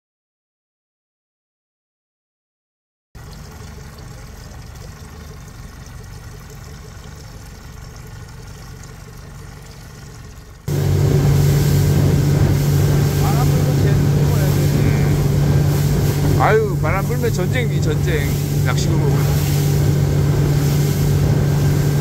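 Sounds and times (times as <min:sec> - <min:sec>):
motorboat engine running: 0:03.2 - 0:22.0
rush of noise: 0:10.7 - 0:22.0.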